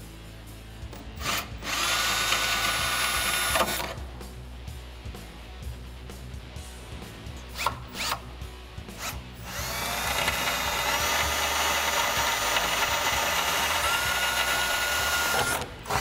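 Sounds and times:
cordless drill boring through steel: 1.2s - 4.0s, 9.0s - 16.0s.

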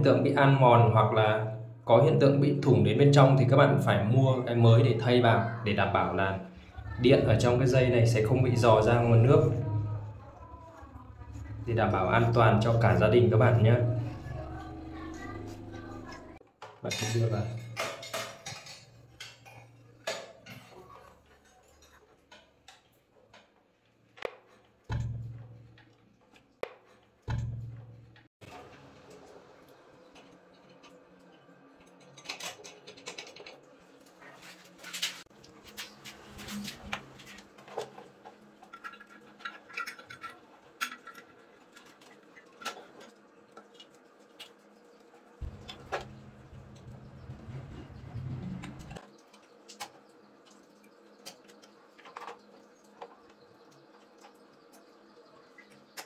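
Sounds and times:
low hum: 6.6s - 16.4s, 45.4s - 49.0s.

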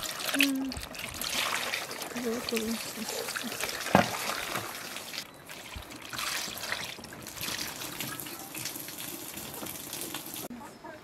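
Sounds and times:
water running off in streams: 0.0s - 10.5s
water splashing over leaves in bowl: 0.0s - 10.5s.

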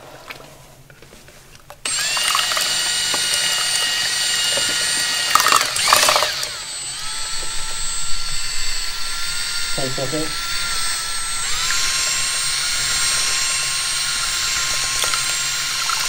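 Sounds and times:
mixing paddle rattle: 1.1s - 6.6s, 10.5s - 16.0s
electric drill whining: 1.8s - 16.0s.

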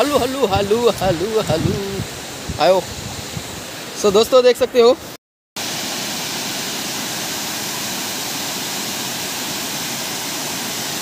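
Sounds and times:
water rushing down spillway: 0.0s - 4.1s, 5.6s - 11.0s.

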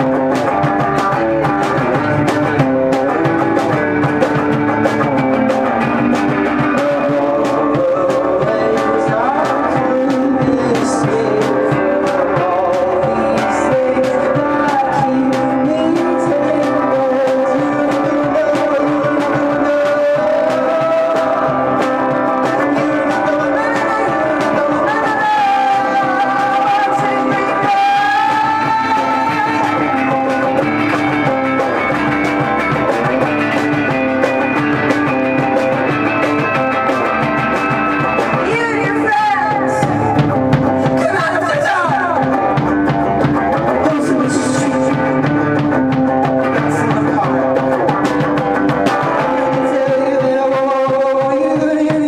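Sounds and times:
electric guitar pitch bends: 0.0s - 41.1s
rock band playing live: 0.0s - 52.0s.

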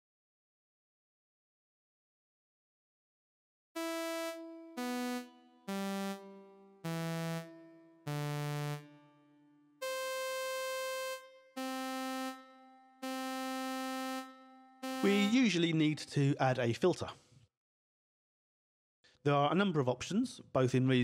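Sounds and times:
bright synth notes with reverb: 3.8s - 9.2s, 9.8s - 15.7s.

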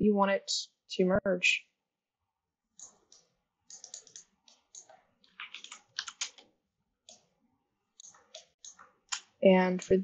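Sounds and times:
computer keyboard typing: 2.8s - 7.3s, 8.0s - 9.9s
mouse clicks: 2.8s - 7.3s, 8.0s - 9.9s.

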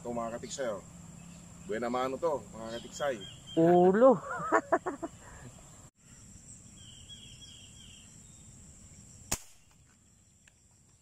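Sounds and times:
insect chirping trill: 0.0s - 11.0s
insects buzzing: 0.0s - 11.0s
air gun shot into water: 9.3s - 9.7s.

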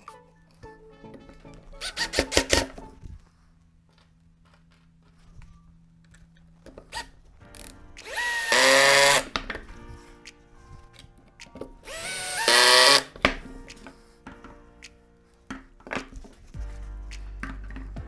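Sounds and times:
cordless drill driving a screw: 8.1s - 9.2s, 11.9s - 13.1s.

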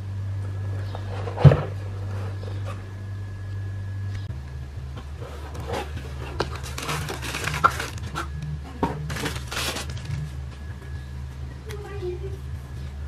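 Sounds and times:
tissue paper crinkling: 5.8s - 8.4s, 9.1s - 10.2s.

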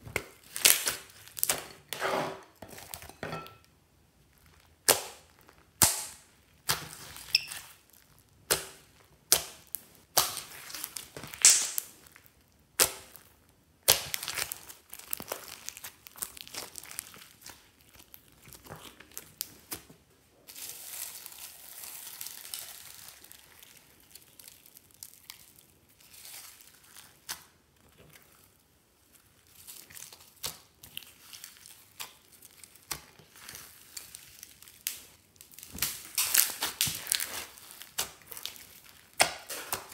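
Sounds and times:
slime squelching: 0.0s - 3.0s, 4.2s - 19.9s, 20.5s - 39.9s
slime popping trapped air: 11.3s - 11.8s.

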